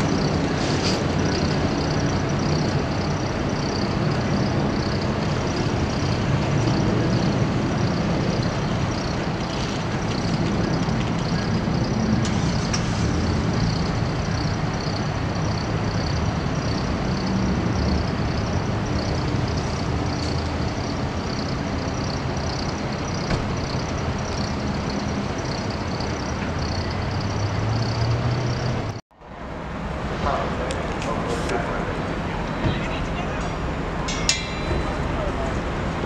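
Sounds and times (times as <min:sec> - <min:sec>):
large vehicle rumbling: 0:00.0 - 0:36.0.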